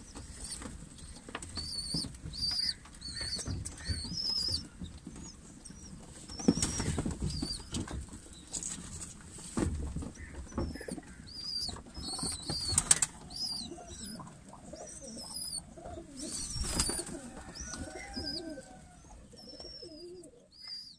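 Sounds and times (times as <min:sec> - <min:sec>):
pigeons cooing: 0:10.2 - 0:20.9
wings flapping: 0:12.0 - 0:13.4, 0:16.2 - 0:18.4.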